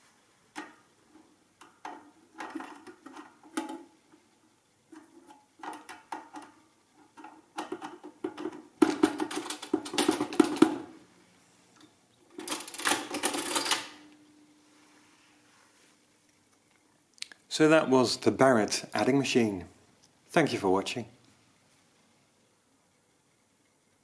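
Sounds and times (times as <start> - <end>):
adding machine mechanism clattering: 7.2 - 10.9, 12.3 - 14.0.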